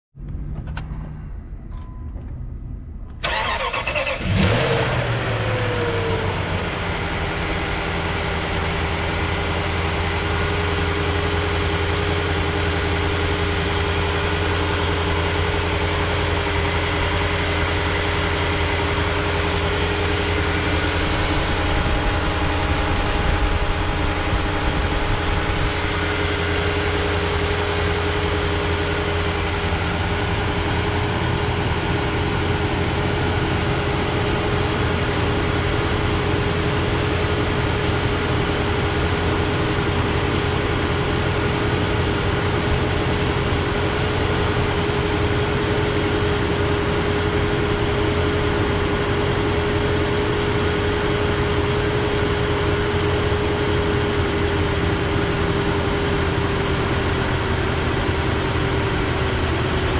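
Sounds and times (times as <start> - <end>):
car engine starting and idling: 0.2 - 59.9.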